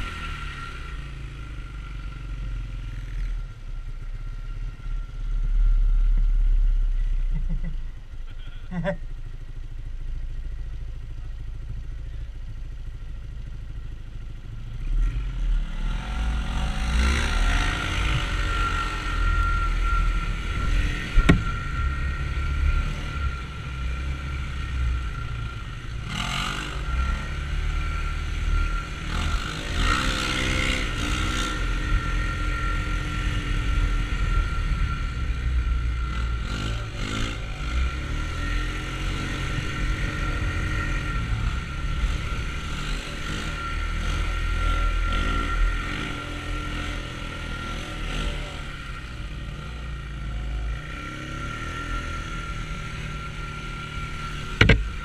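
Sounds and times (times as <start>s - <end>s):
utility vehicle engine revving: 0.0s - 3.5s, 14.6s - 55.0s
sharp knock: 54.6s - 54.9s.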